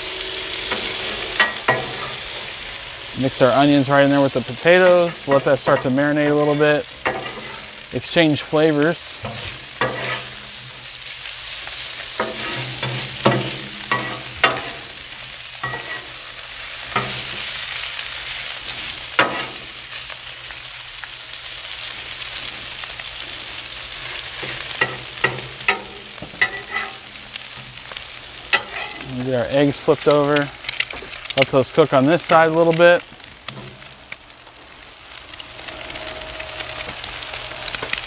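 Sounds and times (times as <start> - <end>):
food sizzling on a griddle: 0.0 - 38.0
metal spatula scraping and clacking: 0.7 - 2.3, 4.6 - 7.8, 9.2 - 10.8, 11.6 - 14.9, 15.6 - 16.2, 16.9 - 17.5, 24.1 - 29.1.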